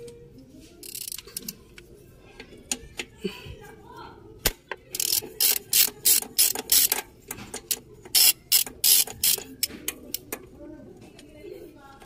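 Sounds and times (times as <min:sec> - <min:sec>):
ratchet wrench clicking: 0:00.8 - 0:01.6, 0:04.9 - 0:10.2.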